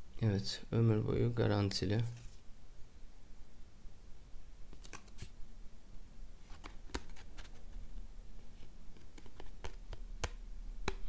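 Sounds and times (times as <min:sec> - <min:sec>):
faint low hum: 0:00.0 - 0:11.0.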